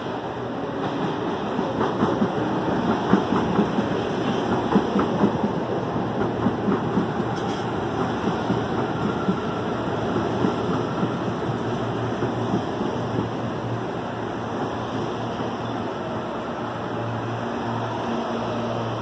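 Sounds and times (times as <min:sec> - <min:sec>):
train rumbling past: 0:00.0 - 0:19.0
train wheels clacking on rail joints: 0:00.8 - 0:13.4.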